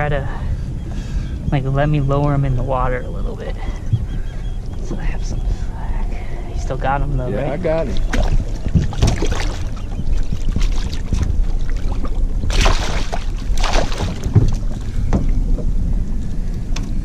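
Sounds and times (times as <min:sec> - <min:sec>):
wind rumble on microphone: 0:00.0 - 0:17.0
shark splashing in water: 0:12.4 - 0:14.4.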